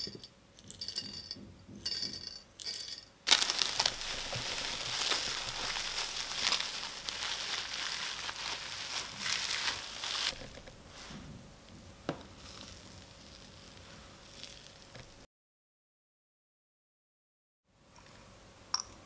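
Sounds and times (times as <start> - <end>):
cling film crinkling: 3.3 - 10.8.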